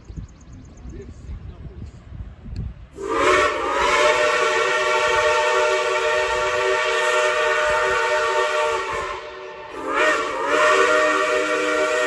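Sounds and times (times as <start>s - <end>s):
steam locomotive chime whistle: 3.0s - 12.0s.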